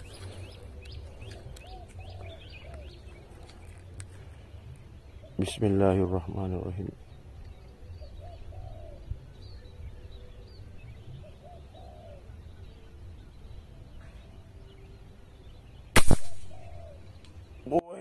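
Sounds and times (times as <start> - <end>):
air rifle shot: 16.0 - 16.8.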